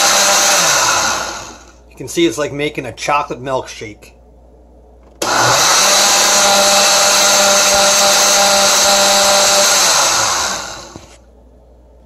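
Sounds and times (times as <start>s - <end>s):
blender motor whining: 0.0s - 1.7s, 5.2s - 11.2s.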